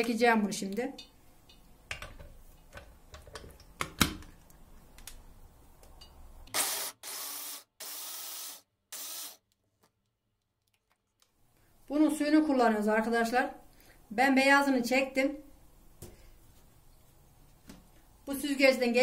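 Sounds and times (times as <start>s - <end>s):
clicks and knocks of blender fitting: 1.5s - 4.3s.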